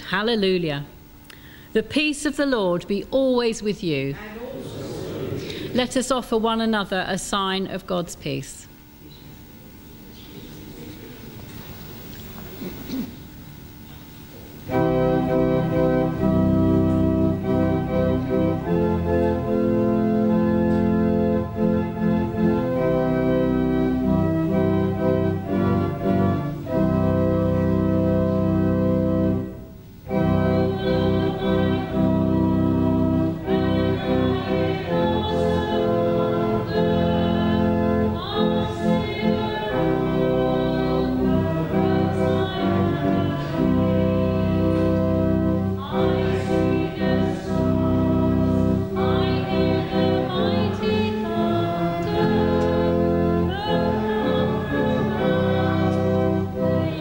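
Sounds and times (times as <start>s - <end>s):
organ playing held chords: 0.0s - 57.0s
people's voices: 3.8s - 6.8s.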